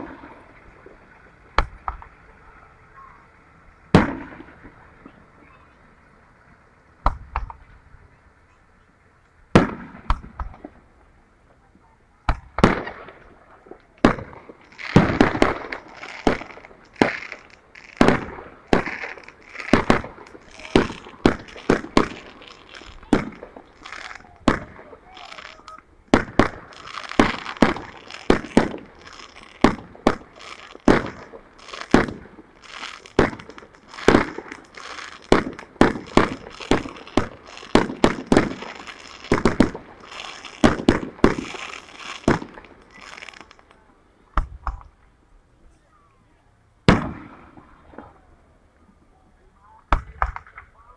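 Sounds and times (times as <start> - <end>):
fireworks booms and crackles: 0.0 - 2.4, 3.9 - 5.6, 9.5 - 10.8, 12.2 - 43.8, 46.8 - 48.3.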